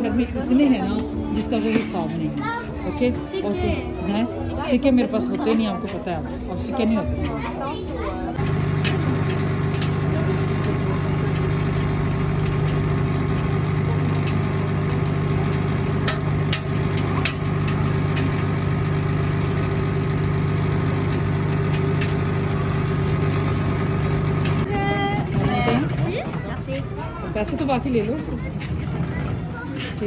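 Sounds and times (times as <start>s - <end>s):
motor humming: 8.4s - 26.0s.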